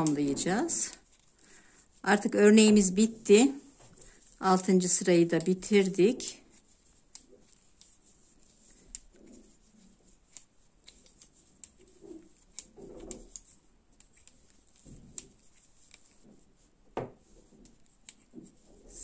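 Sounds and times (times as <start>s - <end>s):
metal knitting needles clicking: 0.0s - 1.3s, 7.0s - 8.0s, 10.1s - 16.2s, 17.6s - 18.3s
yarn rustling: 0.0s - 19.0s.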